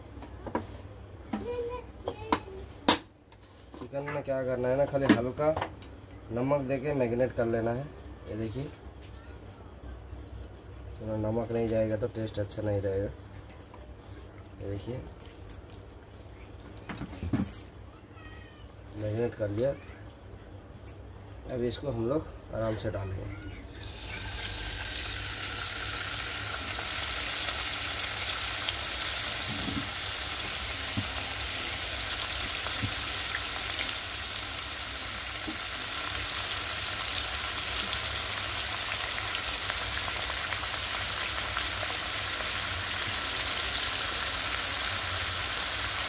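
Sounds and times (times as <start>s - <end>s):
chicken sizzling in hot oil: 23.7s - 46.0s.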